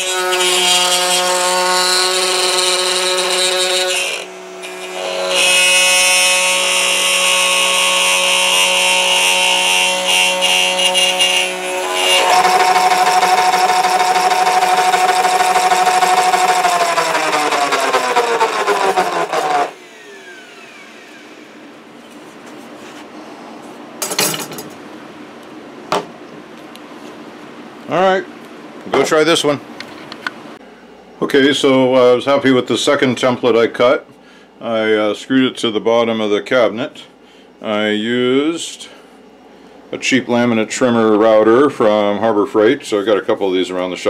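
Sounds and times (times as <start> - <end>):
router cutting plywood: 0.0 - 21.6.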